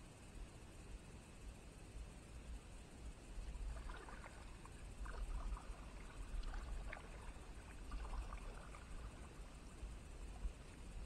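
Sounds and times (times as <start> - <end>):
kayak paddle splashing water: 3.5 - 9.7.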